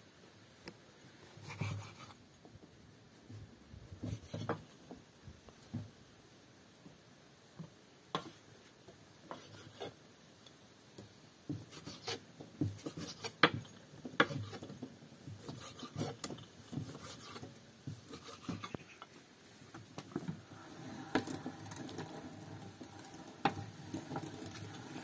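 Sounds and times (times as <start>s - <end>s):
rubbing and rasping strokes: 14.2s - 19.2s
sharp clicks and knocks: 21.0s - 25.0s.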